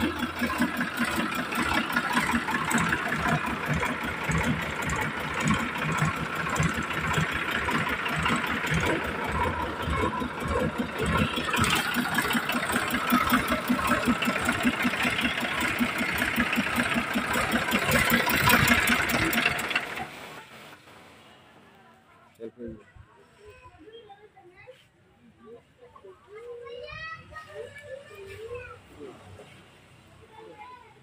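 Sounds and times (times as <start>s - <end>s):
tractor diesel engine running: 0.0s - 20.9s.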